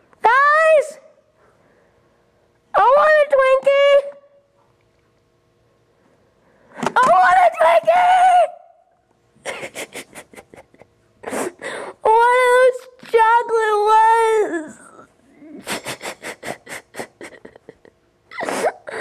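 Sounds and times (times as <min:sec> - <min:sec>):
boy sobbing and wailing: 0:14.1 - 0:19.0.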